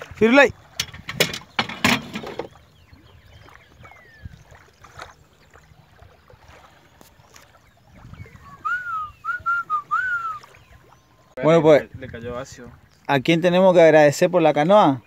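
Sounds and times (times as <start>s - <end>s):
paddle strokes in water: 0.0s - 11.4s
faint bird chirps: 2.3s - 11.4s
whistled notes: 8.2s - 10.7s.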